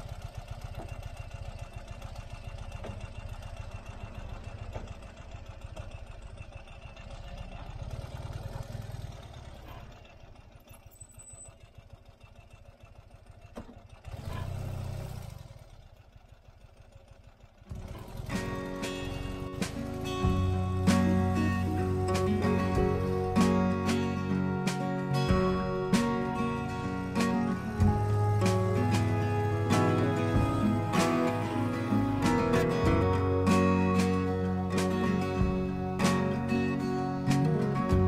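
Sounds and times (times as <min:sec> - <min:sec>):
motorcycle engine running: 0:00.0 - 0:38.0
music: 0:17.8 - 0:38.0.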